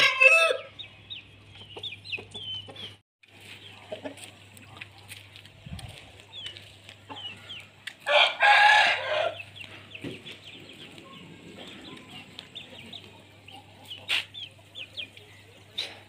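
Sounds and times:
rooster crowing: 0.0s - 0.7s, 8.0s - 9.4s
small birds chirping: 0.7s - 8.0s, 9.3s - 16.0s.

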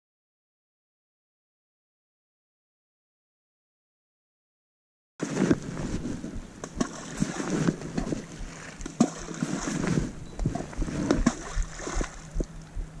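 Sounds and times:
close rustling and crackling: 5.2s - 11.4s.

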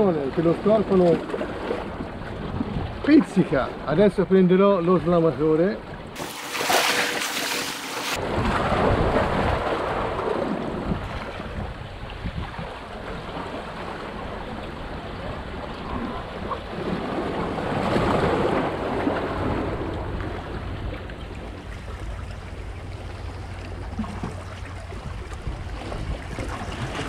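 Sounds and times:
wind rumbling on microphone: 1.2s - 3.8s, 8.2s - 27.0s
sea waves washing against rocks: 6.2s - 22.2s.

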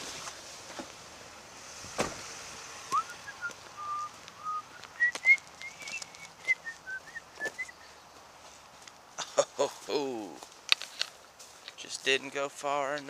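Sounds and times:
thump: 1.9s - 2.3s
person whistling a tune: 3.0s - 7.8s
footsteps on gravel: 3.4s - 12.1s.

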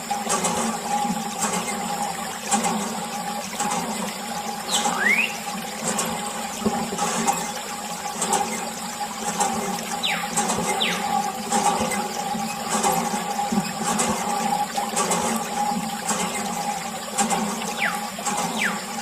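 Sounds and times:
water pouring and splashing: 0.0s - 19.0s
whistle-like squeaks: 4.7s - 5.4s, 10.0s - 11.1s, 17.8s - 18.9s.

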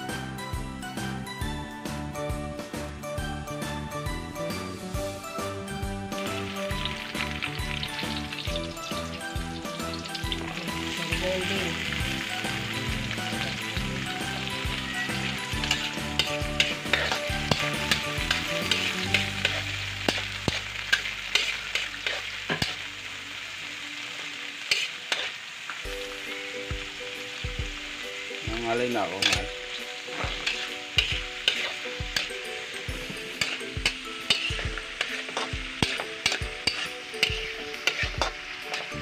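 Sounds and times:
vegetables sizzling in oil: 0.0s - 39.0s
spatula scraping a wok: 11.8s - 22.9s, 24.6s - 25.8s, 29.2s - 39.0s.

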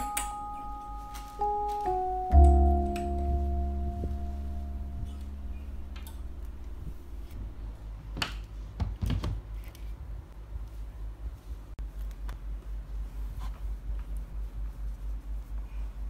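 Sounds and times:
sustained piano note: 0.0s - 7.9s
low steady hum: 0.0s - 16.0s.

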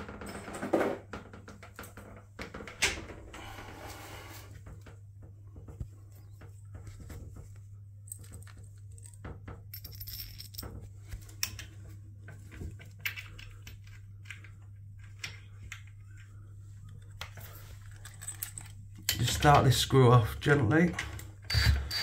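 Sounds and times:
small metal fittings clinking: 17.8s - 19.5s.

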